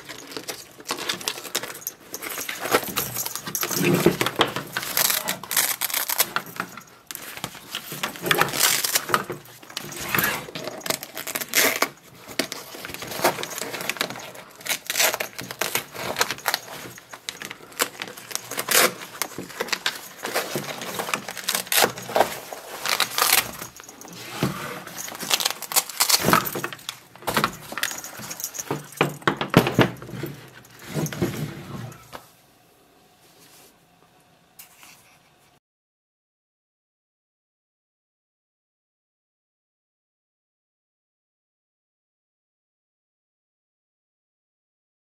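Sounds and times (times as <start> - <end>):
plastic shoulder pads handled: 0.0 - 32.2.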